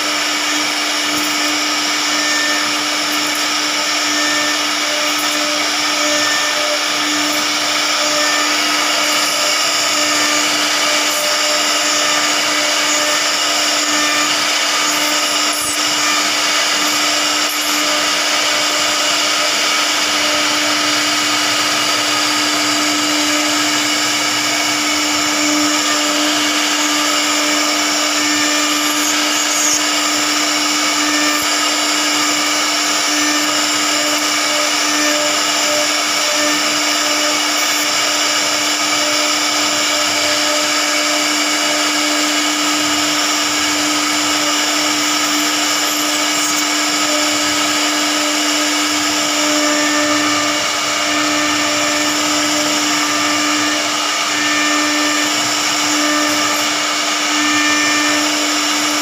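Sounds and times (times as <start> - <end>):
router spindle whining: 0.0 - 59.0.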